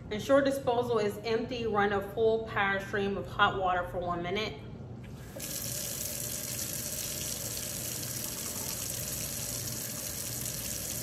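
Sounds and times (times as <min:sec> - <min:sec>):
faucet water rushing into sink: 0:05.3 - 0:11.0.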